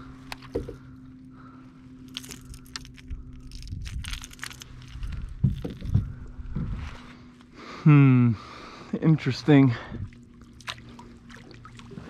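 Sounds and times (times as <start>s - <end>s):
faint steady hum: 0.0s - 12.0s
small clicks and crackles: 2.0s - 6.1s.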